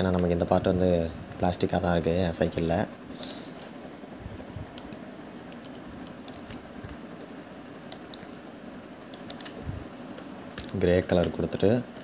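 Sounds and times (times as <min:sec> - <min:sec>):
steady background hiss: 0:00.0 - 0:12.0
mouse and keyboard clicks: 0:04.4 - 0:07.3, 0:07.9 - 0:08.4, 0:09.1 - 0:09.6.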